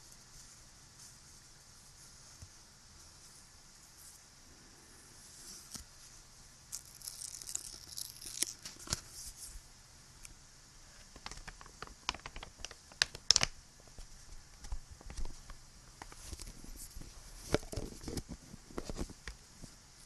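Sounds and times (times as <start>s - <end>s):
steady background hiss: 0.0s - 20.0s
small objects handled tapping and clicking: 11.0s - 13.5s.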